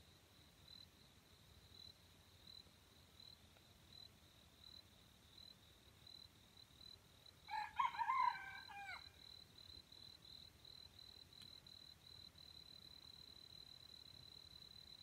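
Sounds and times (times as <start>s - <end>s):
rooster crowing: 7.5s - 9.2s.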